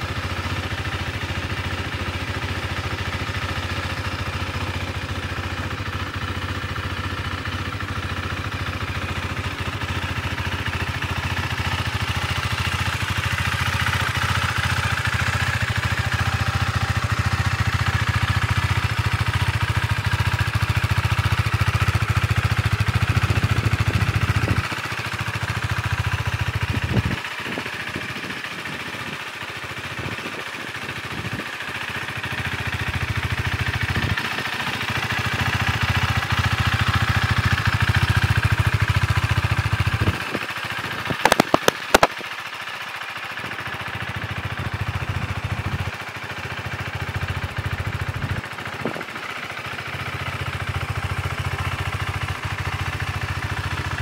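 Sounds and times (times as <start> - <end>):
motorcycle engine idling: 0.0 - 54.0
sharp clicks: 41.1 - 42.3.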